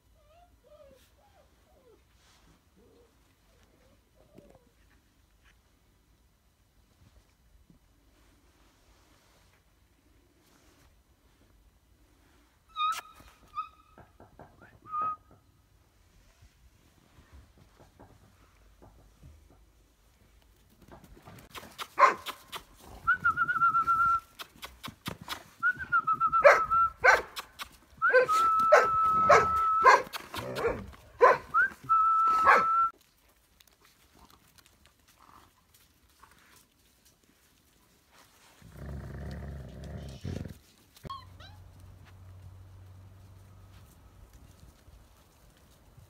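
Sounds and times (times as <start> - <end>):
dogs yipping: 21.8 - 22.6, 26.4 - 31.6, 32.4 - 32.9
puppies whining: 28.0 - 30.8.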